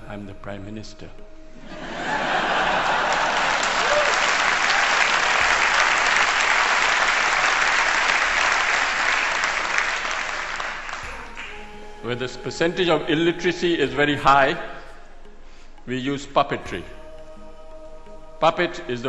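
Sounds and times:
audience applauding: 1.9 - 11.8.

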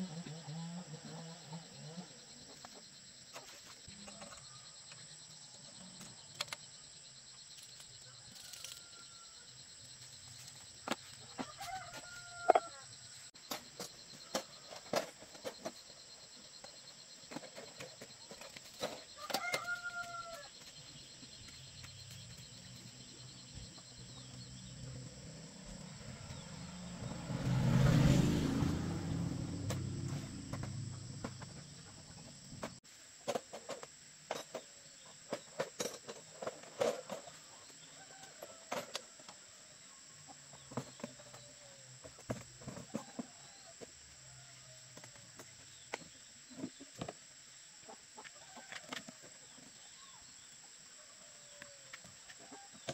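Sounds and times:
insects droning: 0.0 - 52.9
low rumble: 24.8 - 31.9.

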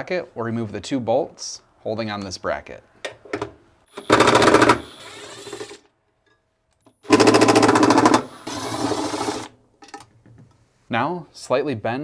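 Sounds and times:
impact driver rattling: 7.1 - 9.5.

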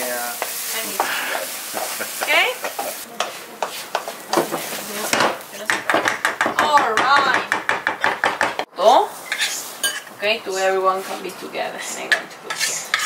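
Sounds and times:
wooden spatula scraping a pan: 0.3 - 5.7, 9.2 - 10.1, 10.9 - 13.0.

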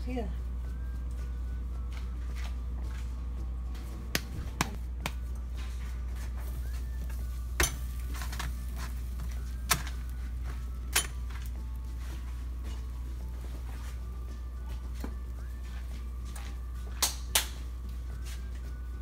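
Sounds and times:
steady low hum: 0.0 - 19.0
tortillas tapping on a griddle: 4.1 - 5.3.

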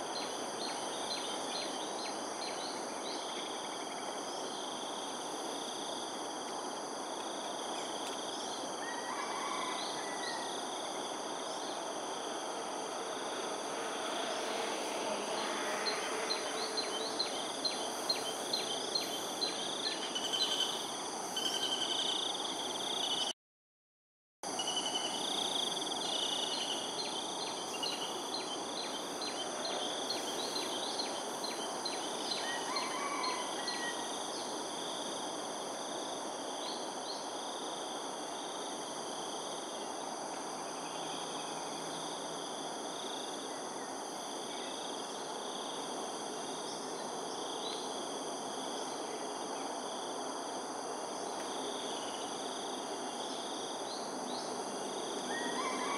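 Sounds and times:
background hiss: 0.0 - 23.3, 24.6 - 55.9
insects trilling: 0.0 - 23.3, 24.5 - 55.9.

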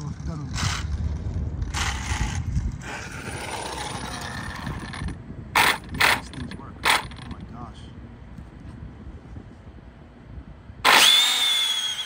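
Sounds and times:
rc car driving on asphalt: 0.0 - 7.4, 10.8 - 12.0
faint motor whine: 0.0 - 12.0.

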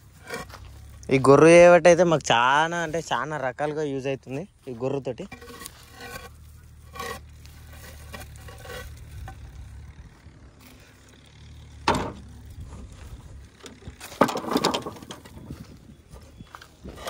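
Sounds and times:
tractor engine idling: 0.0 - 17.0
wooden poles knocking: 11.8 - 15.7.

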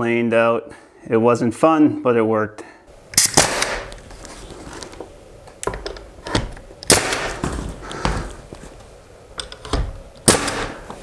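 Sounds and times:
pneumatic nail gun firing: 3.2 - 3.9, 6.8 - 7.4, 10.2 - 10.9.

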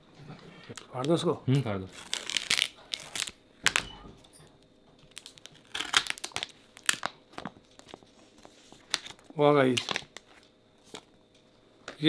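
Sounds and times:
plastic film peeling and crinkling: 0.7 - 3.9, 5.0 - 11.1.

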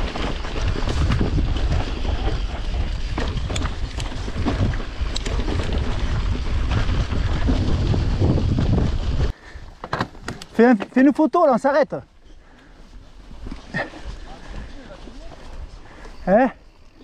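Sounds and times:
wind buffeting microphone: 0.0 - 9.7
bike clicks and rattles: 0.0 - 11.4, 12.1 - 17.0
tyres rumbling on trail: 0.0 - 17.0.

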